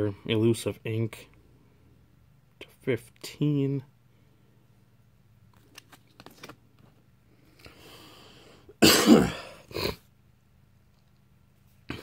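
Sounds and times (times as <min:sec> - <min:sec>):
drawn breath: 0:07.6 - 0:08.7
man coughing: 0:08.8 - 0:10.0.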